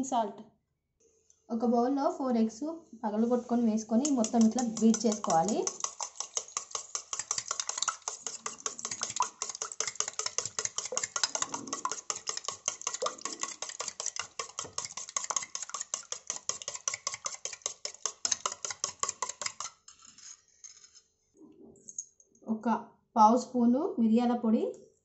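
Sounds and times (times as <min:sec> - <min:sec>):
beaten egg sloshing: 0:03.2 - 0:19.9
spoon clinking against metal bowl: 0:04.0 - 0:19.8.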